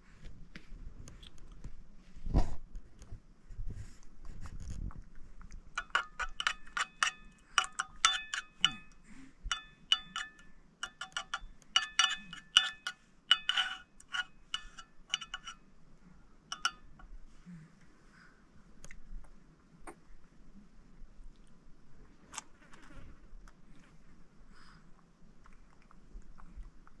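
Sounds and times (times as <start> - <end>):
metal spoon clinking on a plate: 5.8 - 15.6, 16.5 - 17.1.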